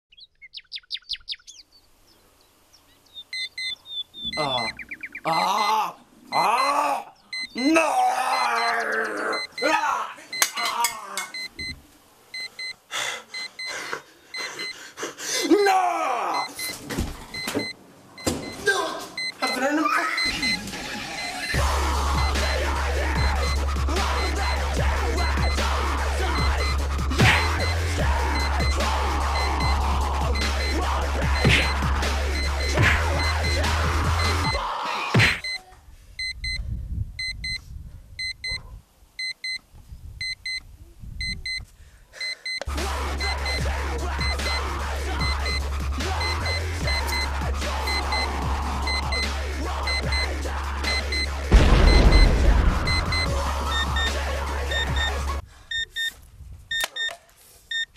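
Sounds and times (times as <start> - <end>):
alarm clock beeping: 3.3 - 4.8, 6.3 - 7.7, 8.4 - 11.8, 12.4 - 13.8, 16.4 - 18.6, 19.2 - 25.8, 26.4 - 34.6, 36.2 - 36.6, 37.2 - 37.6, 38.2 - 38.6, 40.2 - 40.6, 41.2 - 41.6, 42.2 - 56.1
man yelling: 5.3 - 11.3, 15.4 - 16.6, 21.8 - 26.6, 27.2 - 32.1, 42.7 - 51.5.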